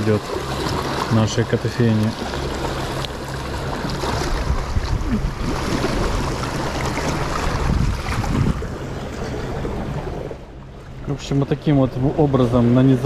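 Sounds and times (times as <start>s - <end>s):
sea waves washing on shore: 0.0s - 13.0s
wind buffeting microphone: 3.7s - 10.7s.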